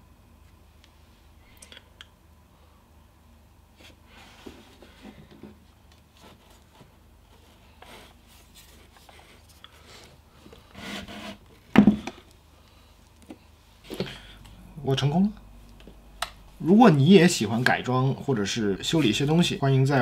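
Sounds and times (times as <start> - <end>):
rubbing and scraping on desk: 10.7 - 11.4.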